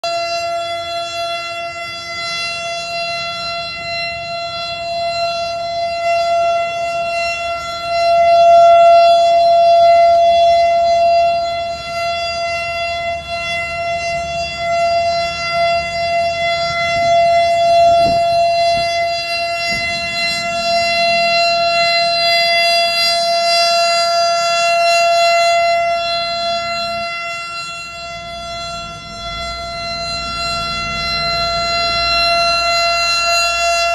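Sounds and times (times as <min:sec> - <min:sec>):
rotating warning siren: 0:00.0 - 0:33.9.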